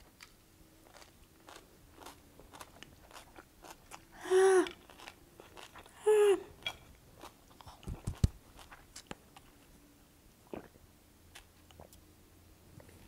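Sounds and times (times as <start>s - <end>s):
woman chewing: 0.1s - 6.0s.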